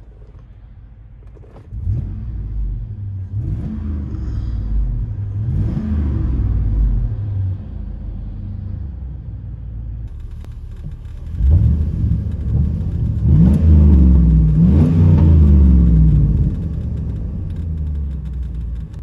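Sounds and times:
engine idling low rumble: 0.0 - 19.0
loud engine revving: 1.7 - 7.5, 10.1 - 18.8.

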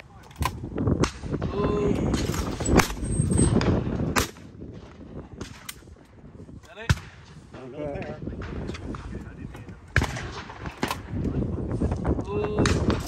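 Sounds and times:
shotgun shots: 9.9 - 11.2.

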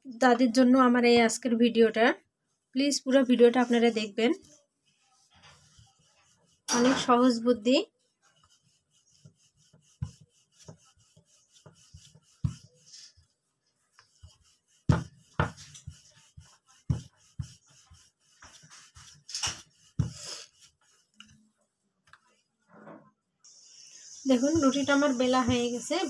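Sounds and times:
rolling pin rubbing on board: 3.1 - 21.2, 23.8 - 26.0.

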